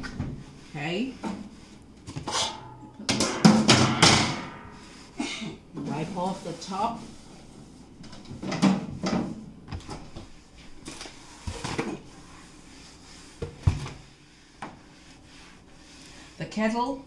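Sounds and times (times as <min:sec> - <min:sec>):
knocks and bumps on kitchen counter: 0:03.1 - 0:04.5.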